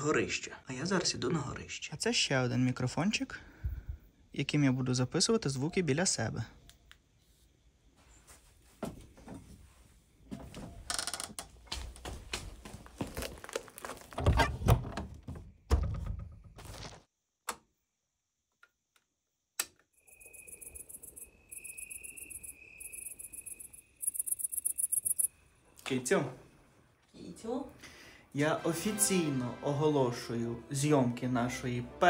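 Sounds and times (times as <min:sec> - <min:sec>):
footsteps: 0:11.5 - 0:14.2
crickets chirping: 0:19.9 - 0:26.7.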